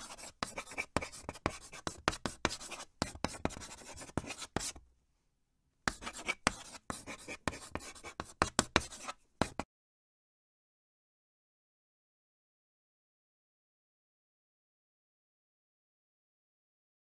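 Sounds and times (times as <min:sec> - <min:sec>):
chalk scratching on a chalkboard: 0:00.0 - 0:04.8, 0:05.9 - 0:09.7.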